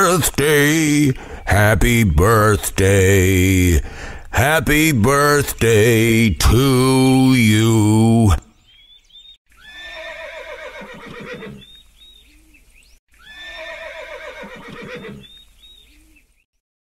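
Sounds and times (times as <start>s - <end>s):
horse whinnying: 9.6s - 11.7s, 13.2s - 15.3s.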